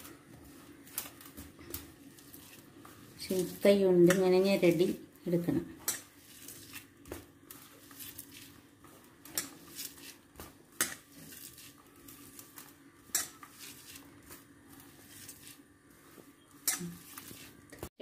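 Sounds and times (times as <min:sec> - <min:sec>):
hand rubbing grated coconut: 0:11.1 - 0:17.7.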